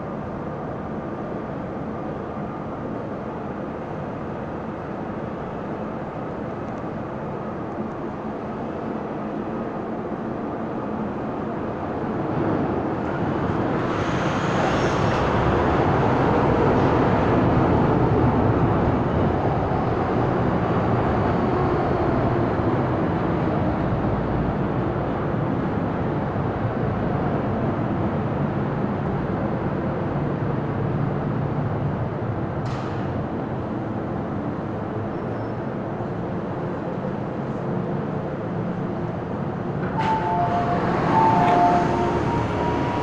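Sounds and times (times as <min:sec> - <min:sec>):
train wheels rumbling: 0:11.8 - 0:24.8, 0:31.6 - 0:43.0.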